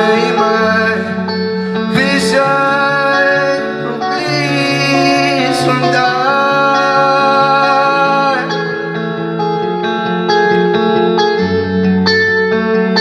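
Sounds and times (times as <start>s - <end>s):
man singing long notes: 0.0s - 9.0s
electric guitar playing: 0.0s - 13.0s.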